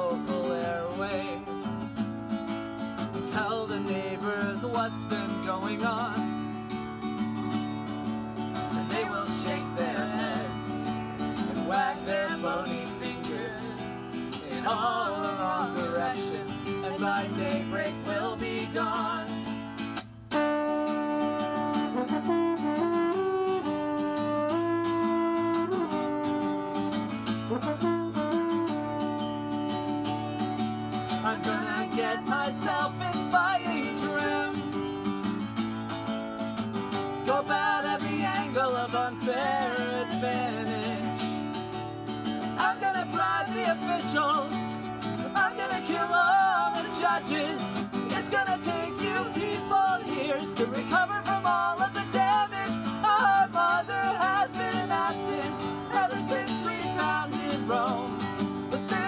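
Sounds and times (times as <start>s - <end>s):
person singing: 0.0s - 1.6s, 3.1s - 6.4s, 8.6s - 19.4s, 31.2s - 34.8s, 37.2s - 41.3s, 42.4s - 59.0s
acoustic guitar playing: 0.0s - 59.0s
french horn melody: 20.3s - 29.7s.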